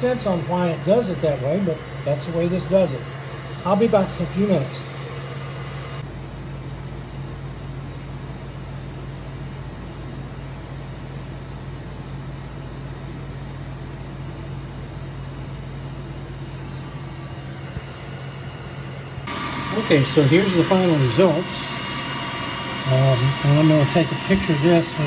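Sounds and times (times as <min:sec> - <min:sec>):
laser engraver humming: 0:00.0 - 0:06.1, 0:12.2 - 0:25.0.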